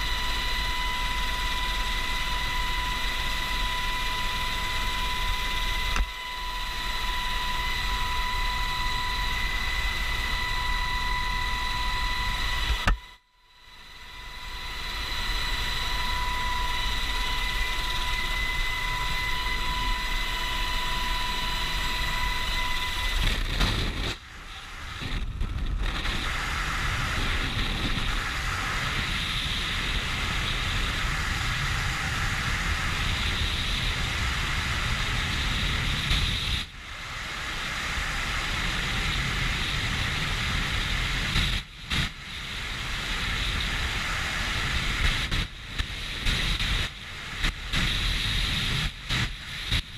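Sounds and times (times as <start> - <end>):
helicopter cabin whine: 0.0 - 49.9
wind rushing over microphone: 14.3 - 49.9.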